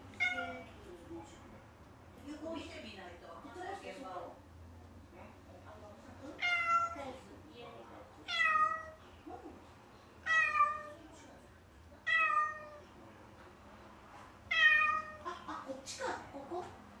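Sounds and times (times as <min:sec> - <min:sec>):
cat meowing: 0:00.1 - 0:00.7, 0:06.4 - 0:07.0, 0:08.2 - 0:09.0, 0:10.2 - 0:11.0, 0:12.0 - 0:12.9, 0:14.5 - 0:15.3.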